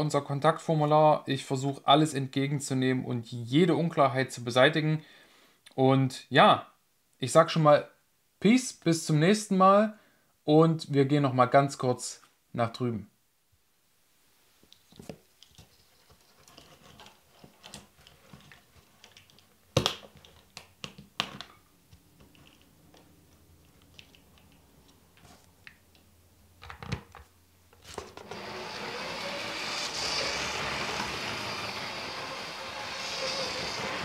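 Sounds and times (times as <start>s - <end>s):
clicks and knocks of handling parts: 14.7s - 28.2s.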